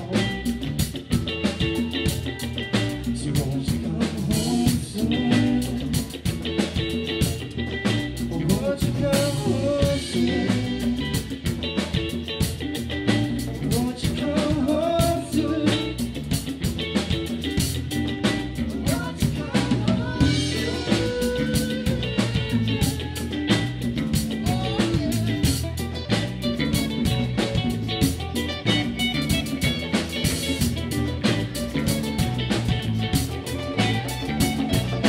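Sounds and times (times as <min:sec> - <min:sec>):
drum kit: 0:00.0 - 0:35.0
electric guitars: 0:00.0 - 0:35.0
man singing into microphone: 0:03.1 - 0:06.2, 0:08.2 - 0:11.0, 0:13.6 - 0:16.1, 0:18.7 - 0:23.4, 0:24.4 - 0:25.6.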